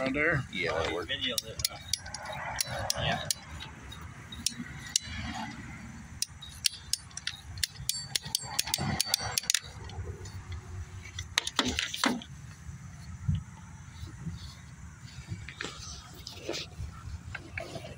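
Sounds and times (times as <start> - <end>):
ratchet cutter clicking: 1.2 - 12.0.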